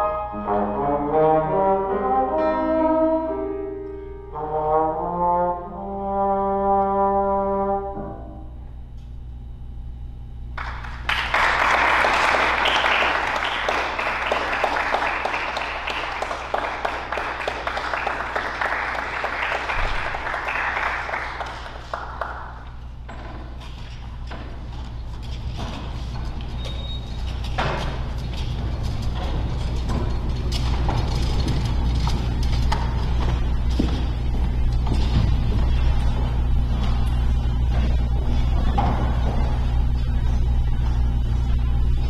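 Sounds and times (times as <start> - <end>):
trombone: 0.0 - 3.6, 4.3 - 8.5
piano: 0.0 - 8.6
audience applause: 10.6 - 22.8.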